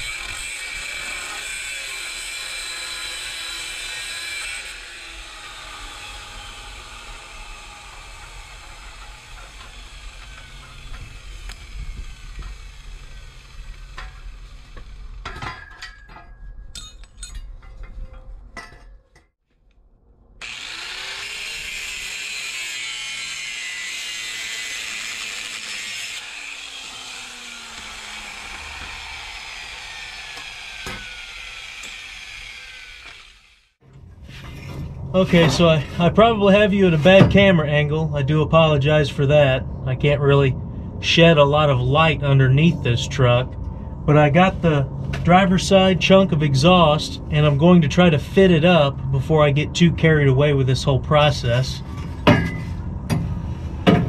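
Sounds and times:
angle grinder cutting steel pipe: 0.0 - 16.2, 20.4 - 37.3
metal pieces clanking: 12.3 - 19.3.

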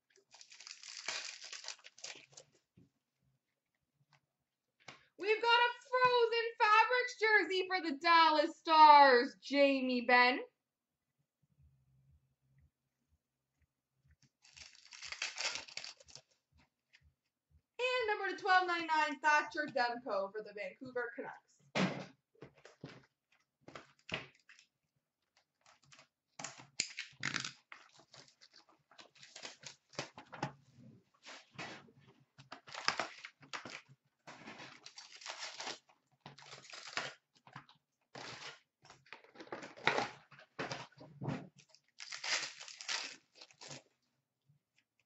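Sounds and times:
card pack wrappers tearing: 0.2 - 2.5, 14.4 - 16.3, 25.6 - 30.2, 32.5 - 33.9, 34.7 - 37.2, 38.2 - 38.6, 41.7 - 44.0.

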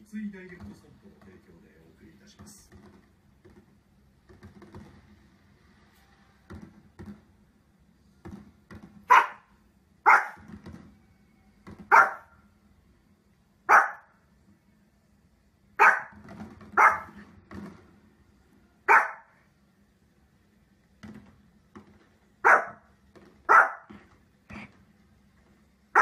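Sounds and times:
small dog barking: 9.1 - 10.5, 11.9 - 12.4, 13.7 - 14.2, 15.8 - 16.2, 16.8 - 17.2, 18.8 - 19.4, 22.4 - 22.9, 23.5 - 23.9.

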